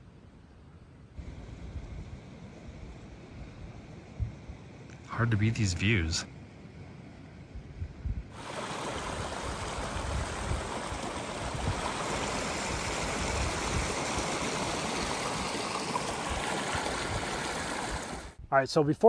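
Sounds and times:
stream rushing: 8.4s - 18.4s.

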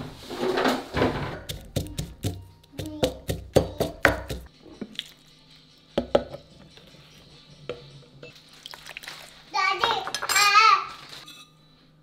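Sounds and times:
wooden pestle pounding in mortar: 1.3s - 4.5s.

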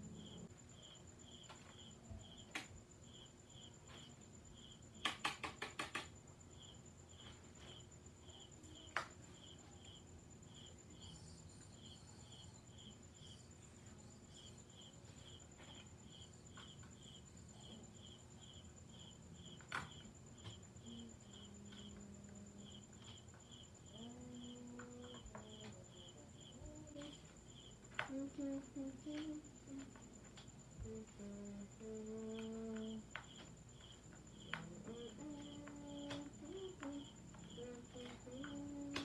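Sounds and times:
cricket chirping: 0.0s - 39.0s.

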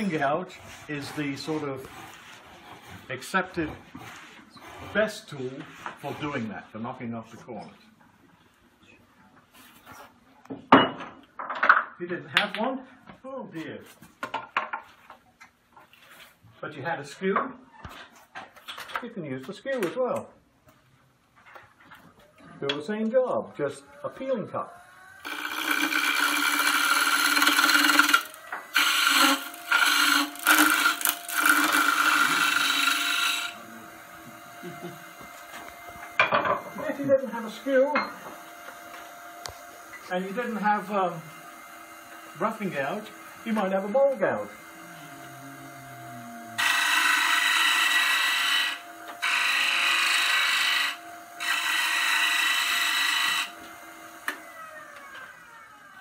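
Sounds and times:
chisel cutting wood on lathe: 0.0s - 6.5s, 24.6s - 55.9s
lathe motor hum: 24.0s - 56.0s.

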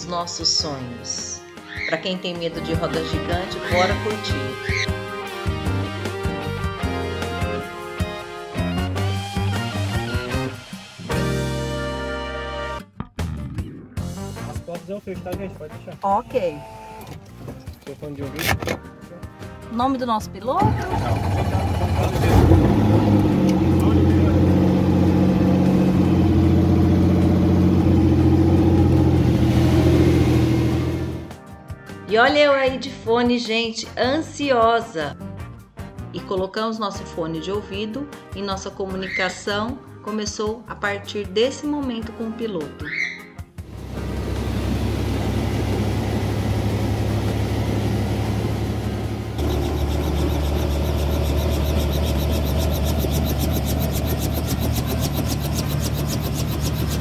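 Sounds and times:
helicopter engine and rotor drone: 43.8s - 57.0s.

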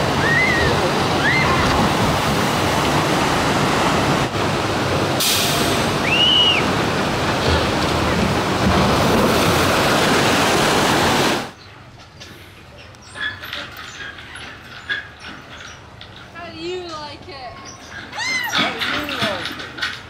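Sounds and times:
water churning in pool: 0.0s - 11.6s
water rushing down flume chutes: 0.0s - 11.6s.

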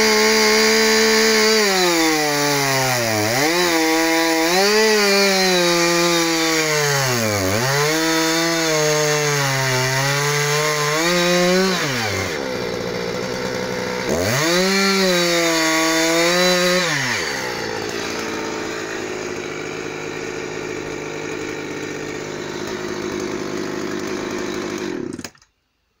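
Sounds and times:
chainsaw revving and idling: 0.0s - 25.4s.

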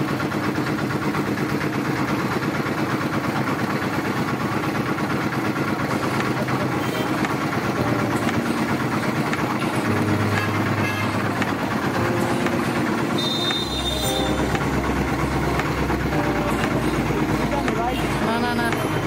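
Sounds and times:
roller press machine running: 0.0s - 19.0s
street traffic: 0.0s - 19.0s
short high tone: 12.1s - 19.0s.

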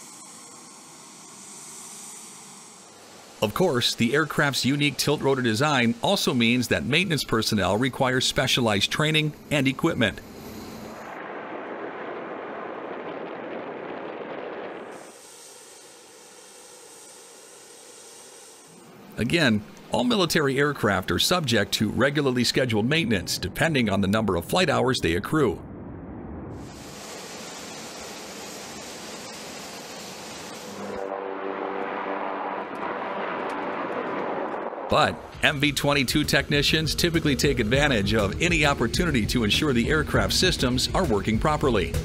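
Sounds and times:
steady hiss: 0.0s - 11.5s, 14.1s - 23.8s, 26.6s - 31.0s
faint high whine: 0.0s - 41.9s
steady rushing noise: 0.0s - 42.0s
low droning hum: 9.3s - 15.1s, 29.2s - 41.4s.

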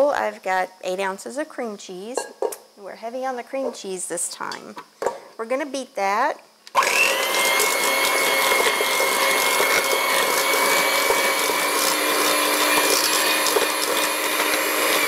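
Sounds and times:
electric hand mixer whining: 6.7s - 15.0s.

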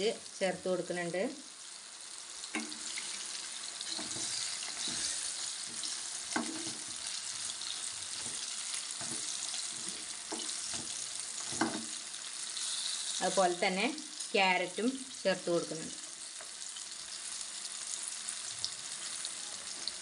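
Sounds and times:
vegetables sizzling in oil: 0.0s - 20.0s
spatula scraping and knocking pan: 3.8s - 12.0s.

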